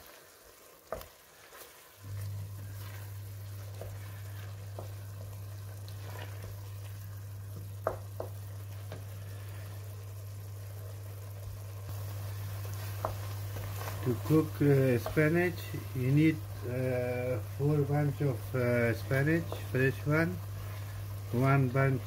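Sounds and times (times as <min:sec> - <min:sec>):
spinach sizzling in oil: 0:00.0 - 0:22.0
steady low hum: 0:02.0 - 0:22.0
wooden spoon knocking pot: 0:07.6 - 0:09.0.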